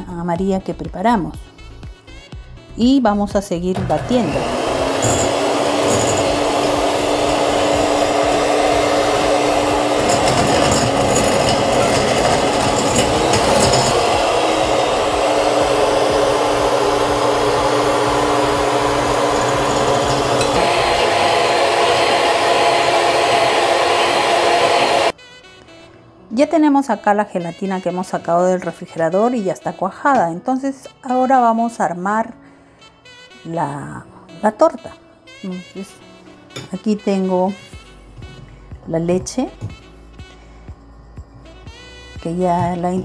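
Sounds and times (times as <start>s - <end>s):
electric mixer whipping: 3.8s - 25.2s.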